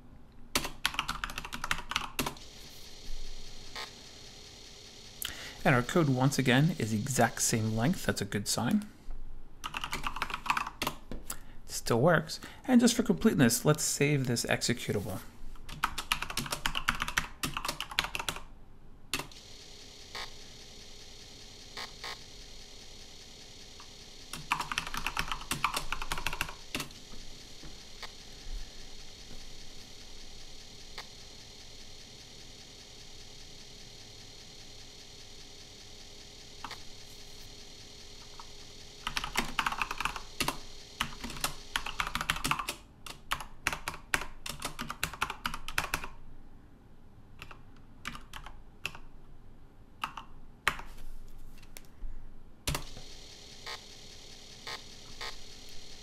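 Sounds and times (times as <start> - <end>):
computer keyboard typing: 0.5 - 2.4, 9.6 - 11.0, 15.6 - 18.5, 19.1 - 19.4, 24.3 - 27.0, 38.3 - 46.2, 47.4 - 49.1, 50.0 - 50.9.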